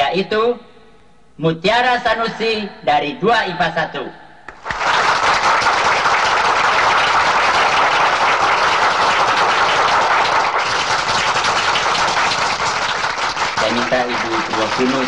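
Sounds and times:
audience clapping: 0:04.5 - 0:15.0.

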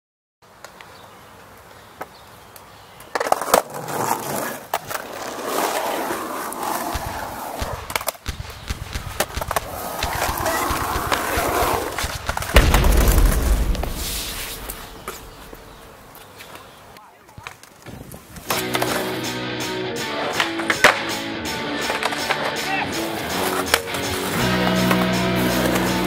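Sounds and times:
skateboard wheels rolling on concrete: 0:00.4 - 0:26.0
skateboard clacks: 0:06.5 - 0:12.6, 0:17.3 - 0:19.2, 0:20.1 - 0:26.0.

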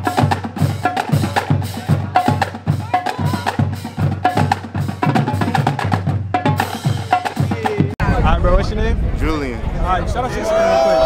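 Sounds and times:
marching drumline: 0:00.0 - 0:08.1.

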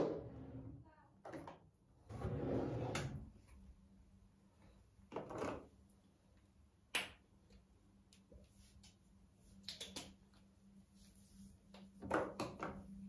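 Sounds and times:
drawer sliding scrape: 0:00.0 - 0:00.8, 0:02.1 - 0:03.2.

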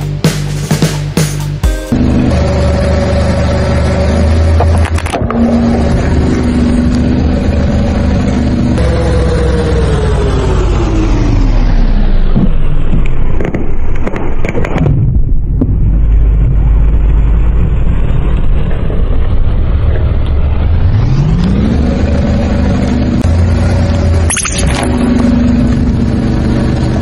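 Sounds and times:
car engine running: 0:00.0 - 0:14.0, 0:14.8 - 0:27.0
sharp cracks: 0:12.9 - 0:15.8.

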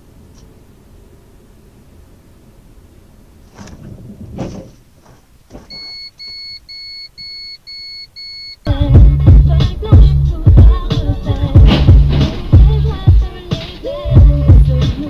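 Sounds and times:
car cabin hum: 0:00.0 - 0:15.0
high electronic beeps: 0:05.7 - 0:08.7
music with heavy bass beat: 0:08.7 - 0:15.0
car bumping knocks: 0:09.6 - 0:13.9.

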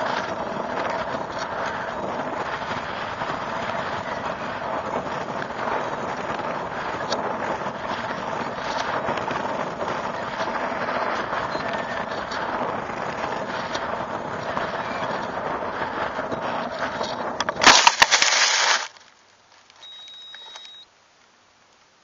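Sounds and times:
wind rushing over microphone: 0:00.0 - 0:18.9
loud crash on ground: 0:17.5 - 0:18.9
high electronic beep: 0:19.8 - 0:20.8.

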